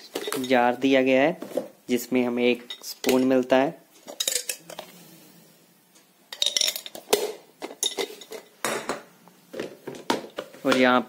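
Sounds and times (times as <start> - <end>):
glass carafe and spoon clinking: 6.3 - 7.0.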